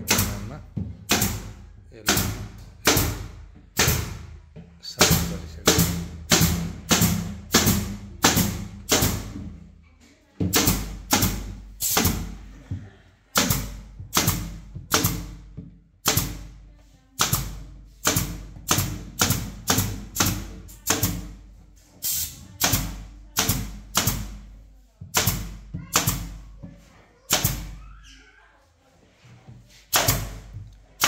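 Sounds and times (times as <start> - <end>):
pneumatic nailer firing nails: 0.0 - 4.4, 5.0 - 9.5, 10.5 - 12.5, 13.3 - 16.6, 17.2 - 21.4, 22.0 - 26.4, 27.3 - 27.9, 29.9 - 30.6.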